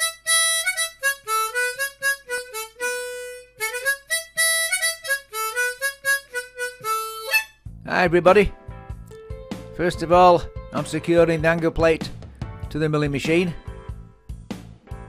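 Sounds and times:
harmonica tune: 0:00.0 - 0:07.6.

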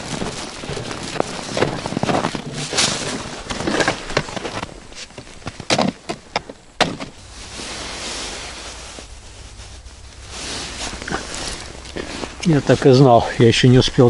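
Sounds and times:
footsteps in snow: 0:00.0 - 0:06.2, 0:06.9 - 0:13.5
gear knocking on ice: 0:00.0 - 0:07.2
steady hiss: 0:00.0 - 0:14.0.

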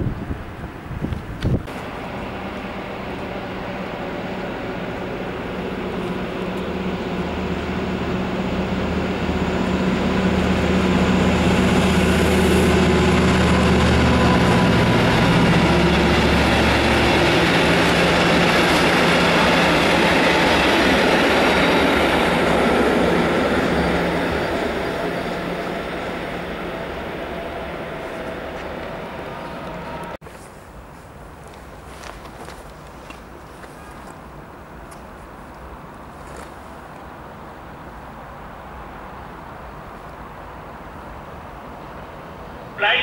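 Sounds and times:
train wheels rumbling on rail: 0:00.0 - 0:30.2
locomotive drone: 0:01.4 - 0:30.2.

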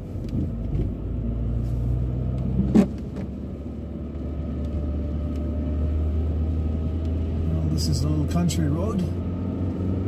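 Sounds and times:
engine and tyre drone: 0:00.0 - 0:10.0.

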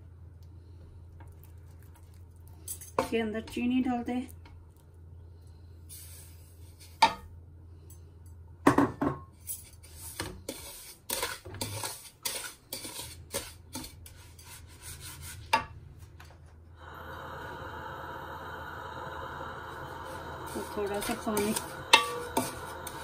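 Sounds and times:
sugar rustling in a pan: 0:09.4 - 0:15.4, 0:20.4 - 0:23.0.

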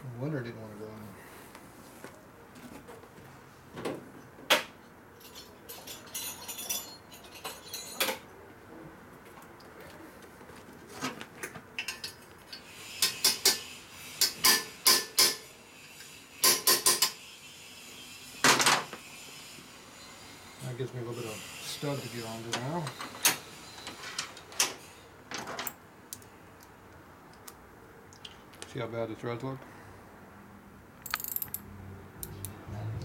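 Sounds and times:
hand tools clicking on metal: 0:31.0 - 0:31.6.

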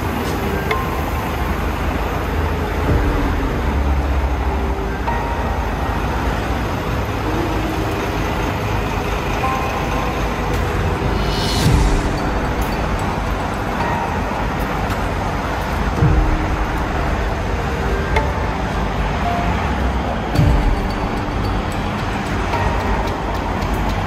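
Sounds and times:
street traffic rumble: 0:00.0 - 0:24.0.

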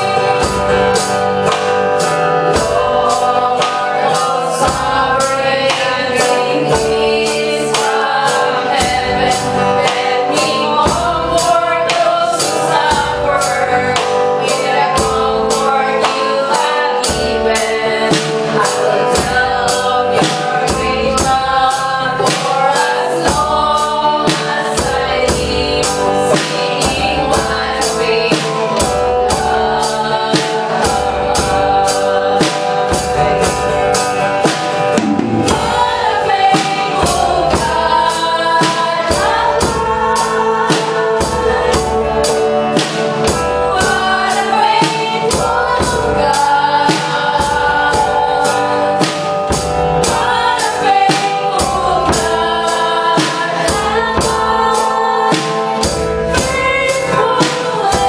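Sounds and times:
band accompaniment: 0:00.0 - 0:58.0
group singing worship song: 0:00.0 - 0:58.0
steady beat: 0:32.7 - 0:46.5.

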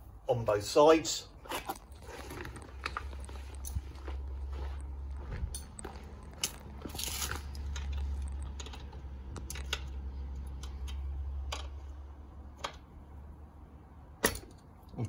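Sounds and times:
steady low rumble: 0:00.0 - 0:15.0
footsteps on dry leaves: 0:01.6 - 0:07.7.

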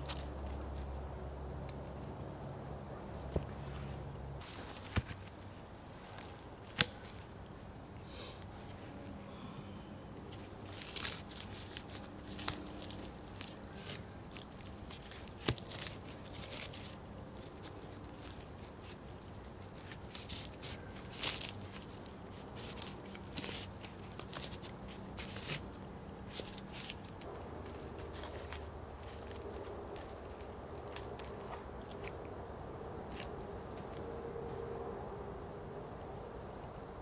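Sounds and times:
rustling of forest litter: 0:03.1 - 0:32.4, 0:33.0 - 0:34.7.

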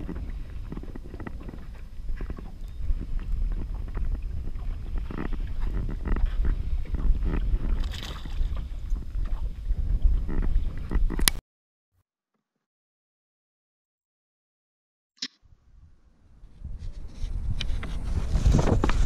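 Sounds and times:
water lapping against hull: 0:00.0 - 0:11.3
wind rumbling on microphone: 0:00.0 - 0:11.4, 0:15.5 - 0:19.0.

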